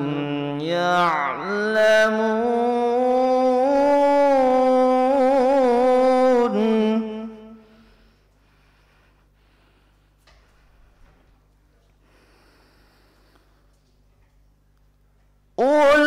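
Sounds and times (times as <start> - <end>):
man reciting melodically: 0.0 - 7.9, 15.6 - 16.0.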